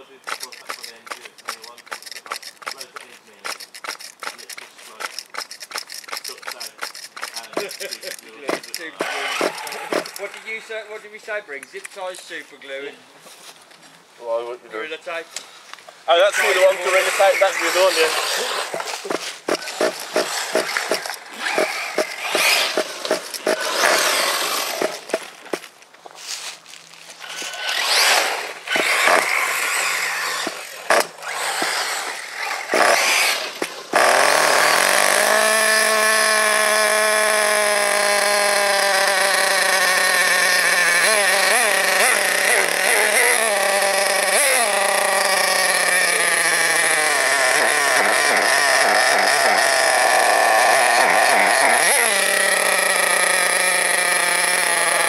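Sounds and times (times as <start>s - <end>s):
nitro engine start attempts: 0.0s - 10.7s, 16.3s - 25.7s, 27.2s - 55.0s.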